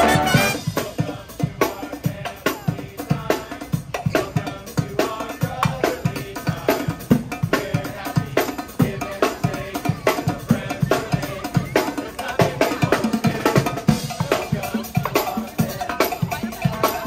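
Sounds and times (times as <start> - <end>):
brass notes held: 0.0 - 0.9
snare and bass drum beat: 0.0 - 17.0.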